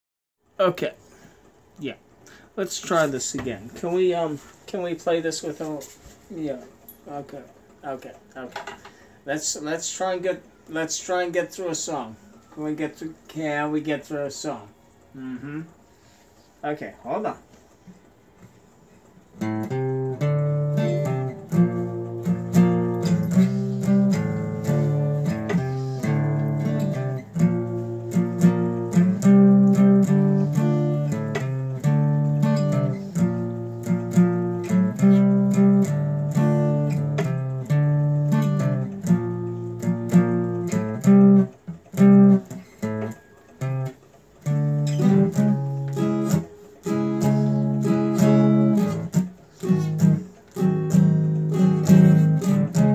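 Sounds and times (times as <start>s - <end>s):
acoustic guitar strumming: 19.3s - 52.9s.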